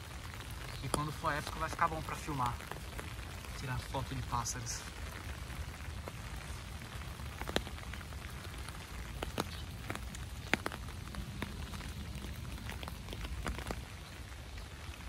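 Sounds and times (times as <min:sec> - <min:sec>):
close raindrop ticks: 0:00.0 - 0:15.0
steady rain patter: 0:00.0 - 0:15.0.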